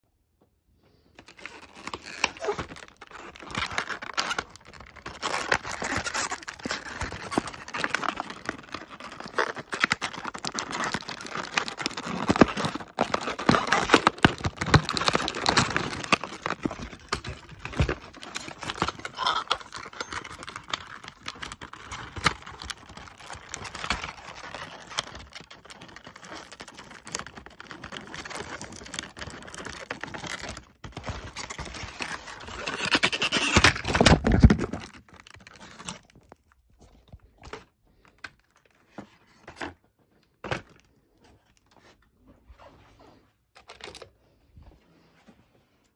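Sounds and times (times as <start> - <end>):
packaging rustling and scraping: 1.2 - 44.0.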